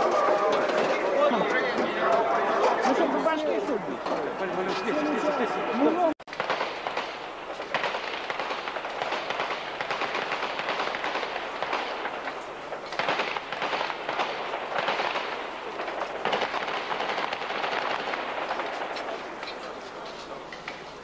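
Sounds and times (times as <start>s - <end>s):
automatic gunfire bursts: 6.3s - 12.2s, 13.0s - 18.8s.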